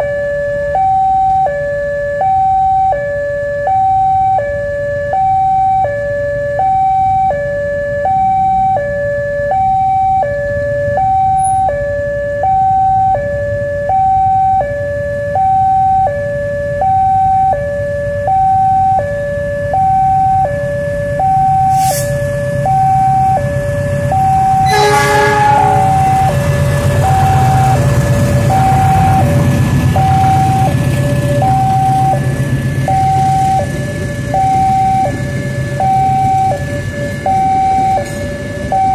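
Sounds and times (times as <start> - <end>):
two-tone level crossing alarm: 0.0 - 38.9
passing train rumble: 20.0 - 38.9
train horn blast: 24.4 - 29.5.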